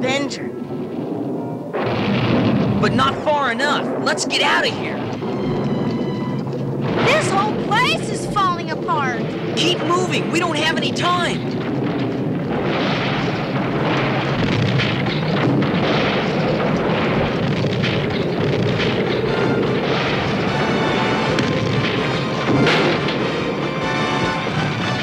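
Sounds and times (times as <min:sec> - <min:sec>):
cartoon rock crumbling rumble: 0:01.7 - 0:25.0
sharp crash: 0:01.7 - 0:25.0
background music: 0:19.3 - 0:25.0.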